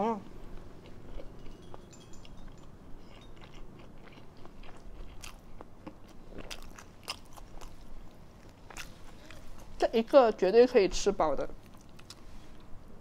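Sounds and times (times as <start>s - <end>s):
chewing and biting burger: 3.1s - 9.7s.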